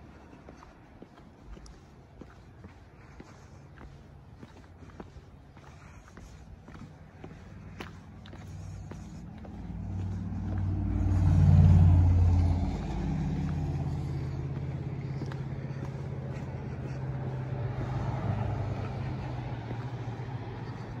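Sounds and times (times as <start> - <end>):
vehicle engine passing: 7.4 - 21.0.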